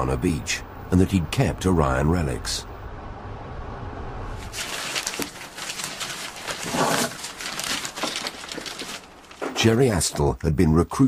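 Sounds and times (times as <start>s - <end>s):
plastic bag rustling: 4.4s - 9.8s
scrapes and small knocks: 4.4s - 10.3s.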